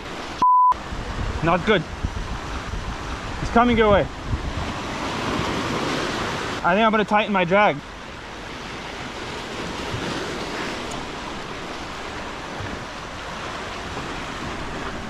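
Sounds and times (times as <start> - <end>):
surf breaking over rocks: 0.0 - 15.0
wind buffeting microphone: 0.8 - 6.6.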